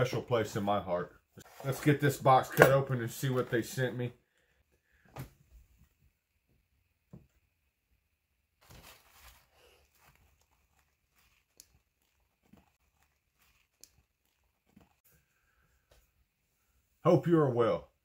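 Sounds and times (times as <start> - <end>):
tissue paper rustling: 8.6 - 15.1.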